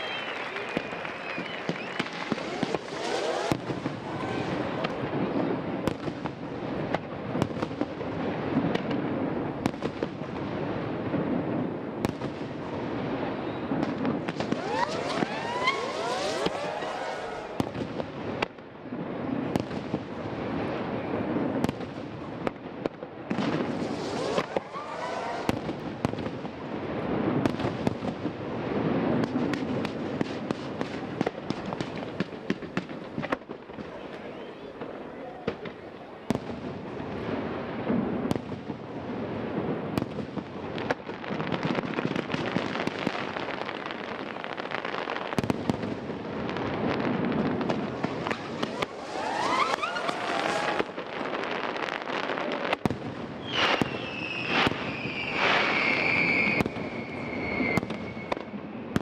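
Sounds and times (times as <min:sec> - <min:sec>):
fireworks rising whistles: 0:00.0 - 0:05.4, 0:13.2 - 0:18.0, 0:23.5 - 0:26.1, 0:47.5 - 0:52.1, 0:53.4 - 0:58.6
fireworks bangs and crackling: 0:00.0 - 0:59.0.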